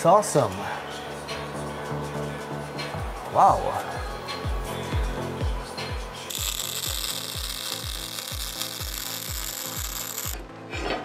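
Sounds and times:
background music with kick drum: 0:00.0 - 0:11.0
welder arc crackling: 0:06.2 - 0:10.4.

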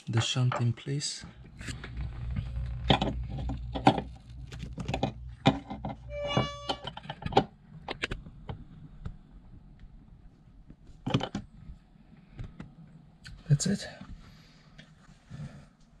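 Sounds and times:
short squeak: 0:06.1 - 0:07.0.

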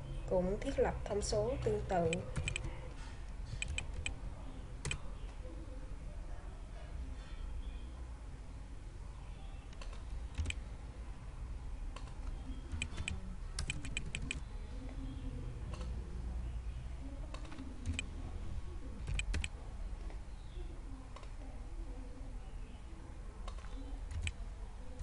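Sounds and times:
low steady hum: 0:00.0 - 0:25.0
keyboard typing: 0:02.0 - 0:04.2, 0:04.8 - 0:05.1, 0:09.7 - 0:10.6, 0:11.9 - 0:14.4, 0:17.3 - 0:18.1, 0:19.0 - 0:19.6, 0:23.4 - 0:24.4.

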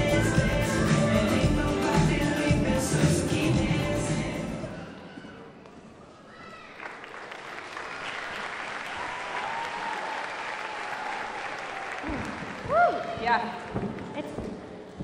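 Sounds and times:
audience applause: 0:06.6 - 0:13.7.

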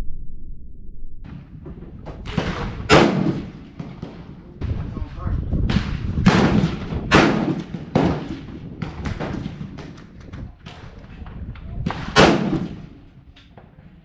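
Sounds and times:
wind rumble on microphone: 0:01.2 - 0:14.0
rifle shots: 0:01.3 - 0:04.9, 0:05.7 - 0:10.9, 0:11.9 - 0:13.0
smaller gunshot reports: 0:02.2 - 0:04.8.

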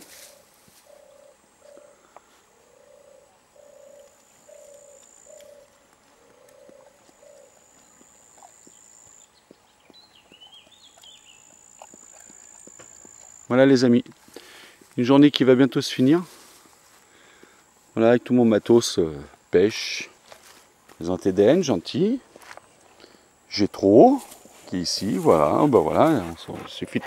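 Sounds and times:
low hooting animal call: 0:00.1 - 0:09.3
bird twittering: 0:02.7 - 0:13.4.

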